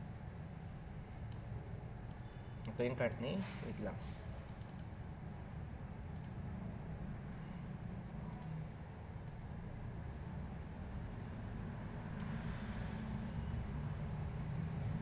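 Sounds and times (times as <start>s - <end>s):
low background hum: 0.0s - 15.0s
computer mouse clicks: 1.1s - 3.3s, 4.5s - 5.0s, 6.1s - 6.4s, 8.3s - 8.6s, 9.2s - 9.5s, 12.1s - 13.3s.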